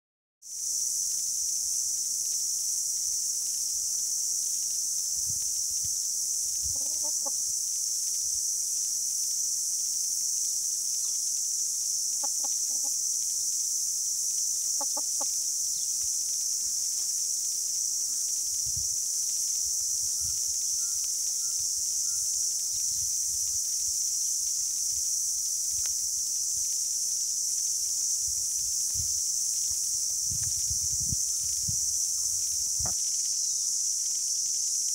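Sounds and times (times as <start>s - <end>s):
high-pitched insect chorus: 0.5s - 34.9s
hens clucking: 6.7s - 7.4s, 12.2s - 13.0s, 14.8s - 15.4s.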